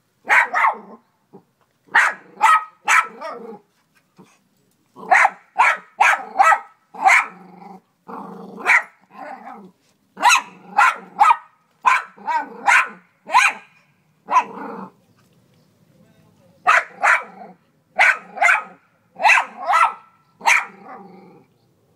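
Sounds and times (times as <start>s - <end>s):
dog barking: 0.2s - 1.0s, 1.9s - 3.4s, 5.1s - 7.4s, 8.6s - 9.0s, 10.2s - 14.6s, 16.7s - 17.4s, 18.0s - 21.0s
dog growling: 7.0s - 9.8s, 14.3s - 15.0s, 20.6s - 21.5s.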